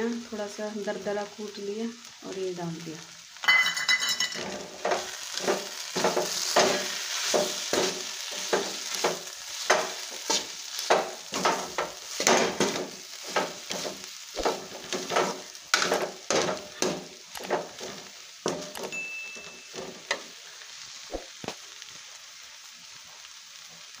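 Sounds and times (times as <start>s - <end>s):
food sizzling: 0.0s - 24.0s
metal spoon scraping a pan: 3.7s - 20.3s.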